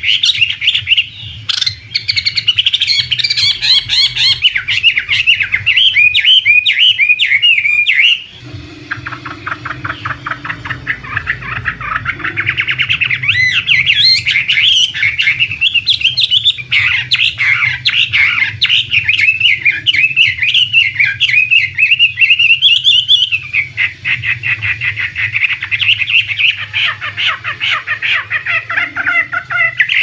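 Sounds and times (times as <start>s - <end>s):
bird singing warbled notes: 0.0s - 30.0s.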